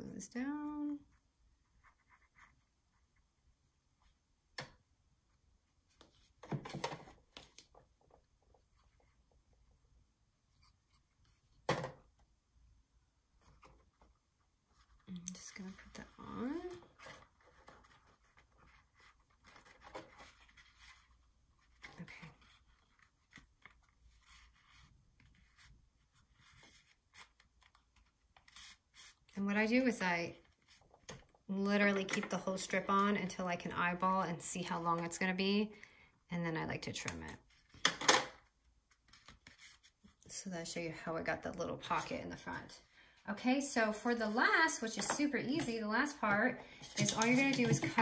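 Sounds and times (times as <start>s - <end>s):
paper rustling and tapping: 46.8s - 48.0s.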